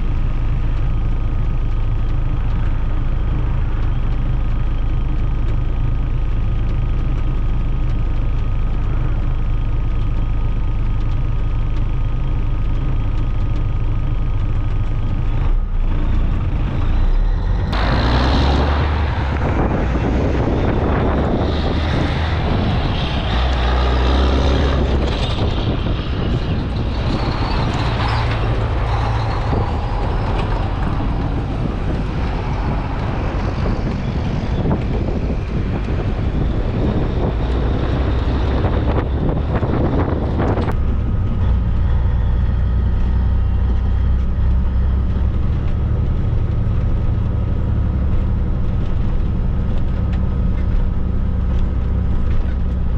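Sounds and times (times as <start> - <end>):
truck diesel engine: 0.0 - 52.9
rushing air: 17.0 - 43.3.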